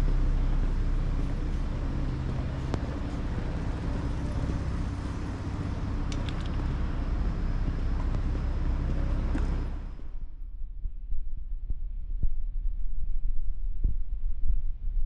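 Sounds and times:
traffic rumble: 0:00.0 - 0:10.5.

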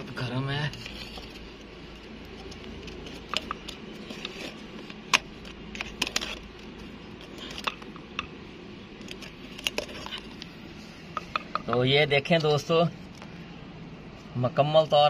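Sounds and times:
knife scraping steel tumbler rim: 0:00.5 - 0:07.8.

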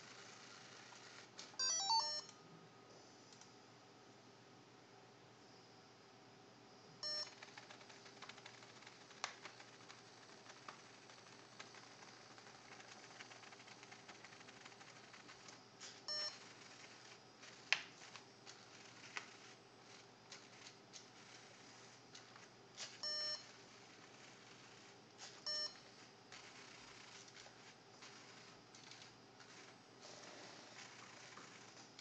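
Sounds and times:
electronic beeps: 0:01.6 - 0:02.3, 0:07.0 - 0:07.5, 0:16.0 - 0:16.7, 0:23.0 - 0:23.6, 0:25.3 - 0:25.9.

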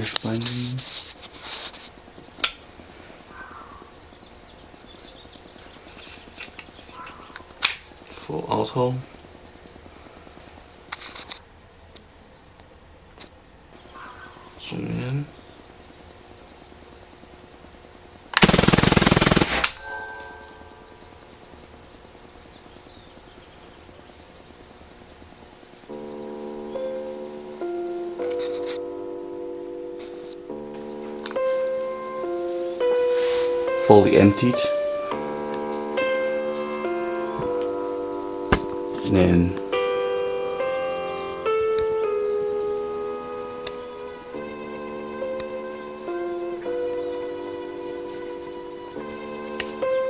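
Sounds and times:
bird chirping: 0:03.2 - 0:08.6, 0:10.7 - 0:17.4, 0:19.8 - 0:49.9
air rifle rapid burst: 0:18.4 - 0:19.8
brief ringing: 0:19.7 - 0:21.1.

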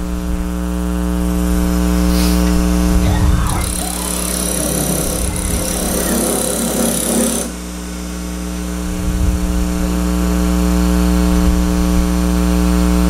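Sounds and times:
hissing noise: 0:01.9 - 0:07.6
wood lathe motor hum: 0:03.4 - 0:08.0.

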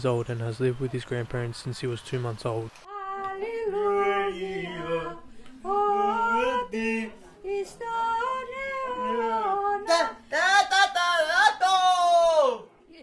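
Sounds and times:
woman singing unaccompanied: 0:02.9 - 0:10.7.

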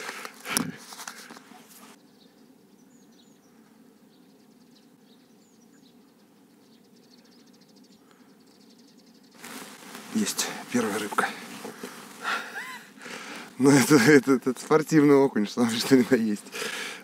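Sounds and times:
faint bird chirps: 0:01.9 - 0:11.5.

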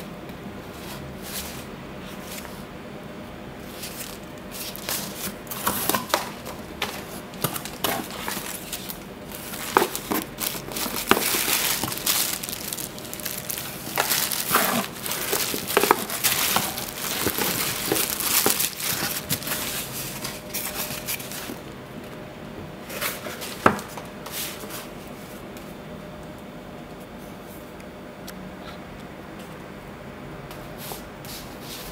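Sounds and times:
paper and cardboard rustling: 0:03.6 - 0:21.6
plastic wrap crinkling: 0:03.7 - 0:21.6
small knocks in cardboard box: 0:09.4 - 0:19.6.

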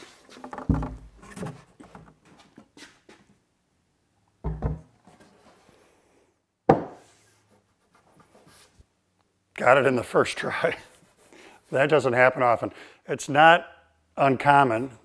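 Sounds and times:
wood knocking on workbench: 0:00.6 - 0:01.1, 0:04.4 - 0:04.9, 0:06.7 - 0:07.0.

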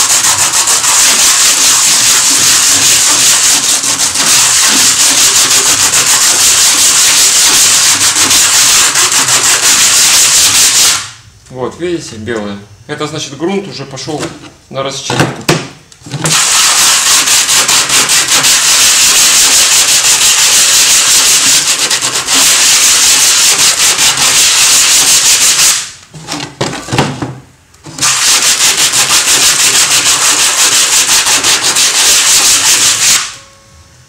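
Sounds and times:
sandpaper rasping on wood: 0:00.0 - 0:11.0, 0:16.3 - 0:25.8, 0:28.0 - 0:33.3.

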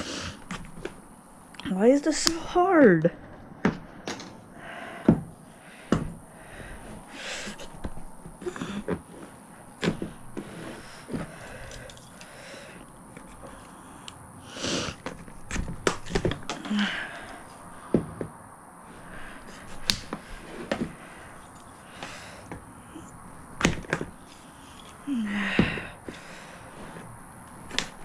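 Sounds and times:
scraping and handling sounds: 0:05.9 - 0:28.0
plastic snapping under shears: 0:15.0 - 0:16.7, 0:27.5 - 0:28.0.

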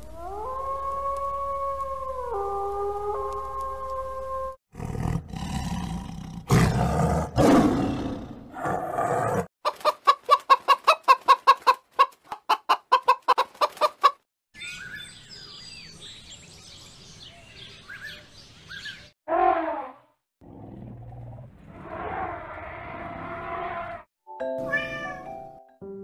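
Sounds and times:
lion roaring: 0:04.7 - 0:09.5, 0:20.4 - 0:24.0
hen clucking: 0:09.6 - 0:14.2
birds chirping: 0:14.6 - 0:19.2.

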